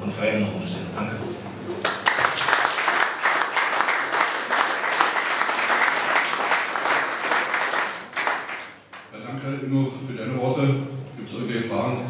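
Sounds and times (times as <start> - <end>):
audience applauding: 1.8 - 9.1.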